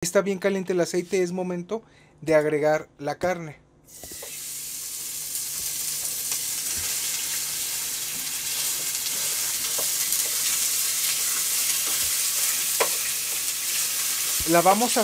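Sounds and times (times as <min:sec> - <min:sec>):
meat sizzling in a frying pan: 0:03.9 - 0:15.0
wooden spatula scraping and tapping: 0:08.2 - 0:10.7, 0:11.3 - 0:13.5.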